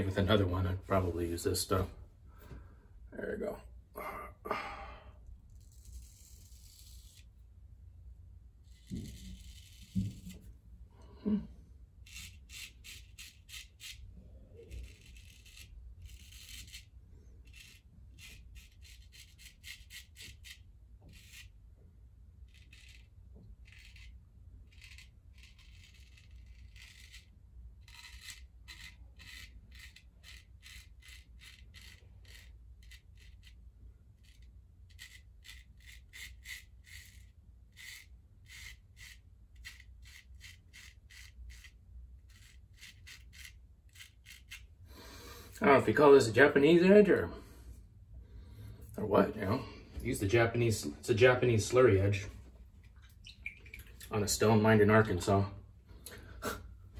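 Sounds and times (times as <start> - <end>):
razor scraping beard stubble: 5.3 - 7.5, 8.6 - 10.6, 12.0 - 46.9.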